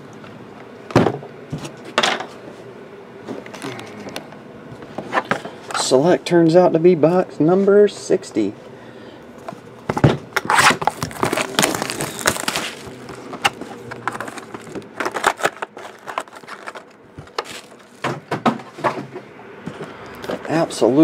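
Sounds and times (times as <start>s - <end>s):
cardboard boxes clicking and knocking: 9.9s - 19.2s
plastic shrink wrap crinkling: 10.4s - 18.0s.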